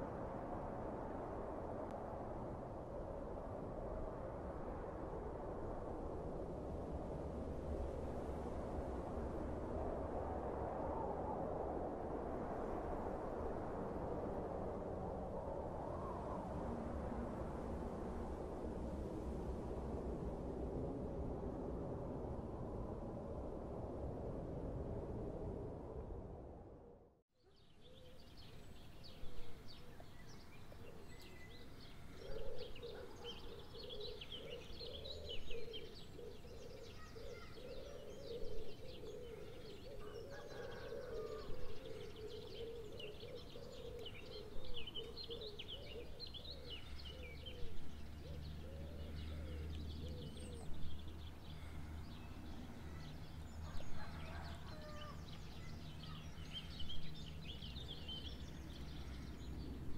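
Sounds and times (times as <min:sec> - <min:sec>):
small birds chirping: 0:27.6 - 0:59.8.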